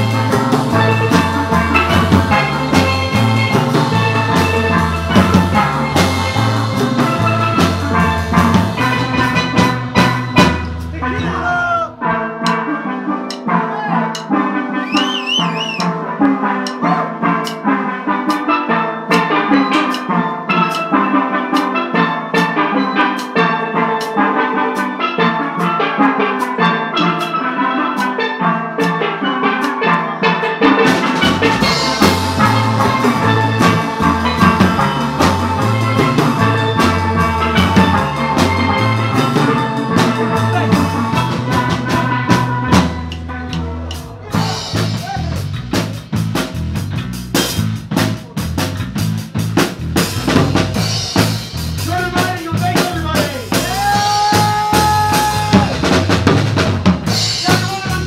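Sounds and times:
low bass line: 0.0 - 12.0, 31.3 - 56.7
cymbals: 0.0 - 58.0
drum kit beat: 0.0 - 58.0
steel pans playing a tune: 0.0 - 58.0.

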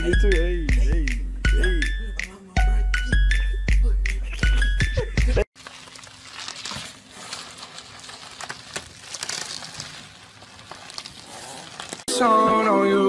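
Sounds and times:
bubble wrap crinkling: 5.5 - 12.1.

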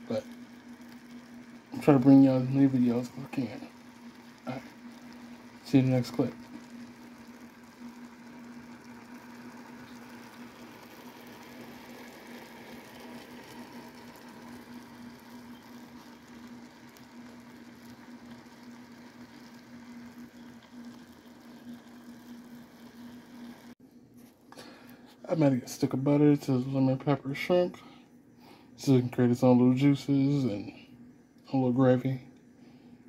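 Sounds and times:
meat bubbling and sizzling: 0.0 - 23.8
steady low hum: 0.0 - 33.0.

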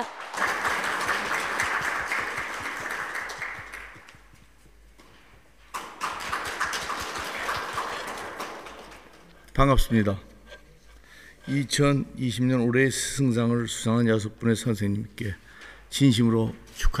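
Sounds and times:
audience applauding: 0.0 - 4.6, 5.7 - 9.5.

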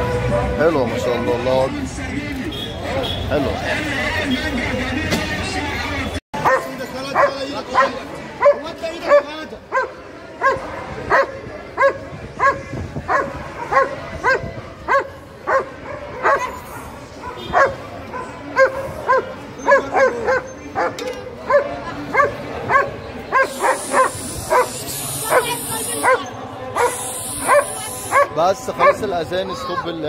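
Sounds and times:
dog barking: 6.4 - 29.1.

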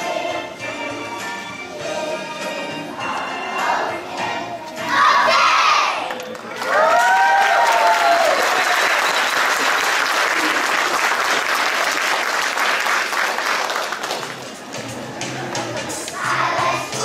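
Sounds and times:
audience applauding: 6.1 - 14.5
whooping cheers: 6.5 - 9.4.

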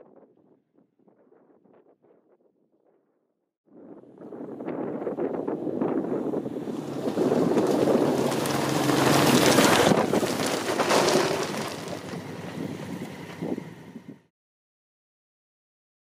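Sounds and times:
motorcycles riding past: 6.0 - 14.1.

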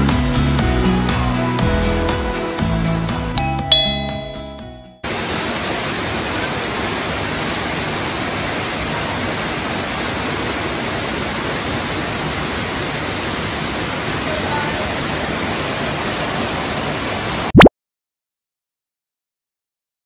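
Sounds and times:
short musical chime: 3.4 - 5.0
waterfall rushing: 5.1 - 17.5.

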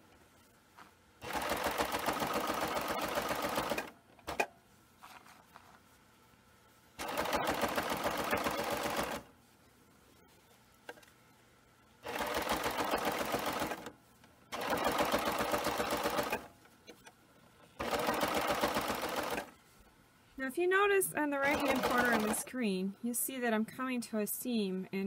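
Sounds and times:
serger sewing machine stitching: 1.2 - 4.5, 7.0 - 9.3, 12.0 - 13.9, 14.5 - 16.5, 17.8 - 19.5, 21.4 - 22.5.

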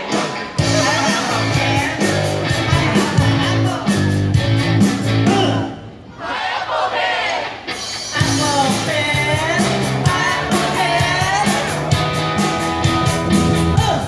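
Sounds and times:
drums and bass: 0.0 - 5.9, 7.6 - 14.0
live band music: 0.0 - 6.0, 7.4 - 14.0
man singing into a microphone: 0.6 - 4.0, 8.2 - 11.8.

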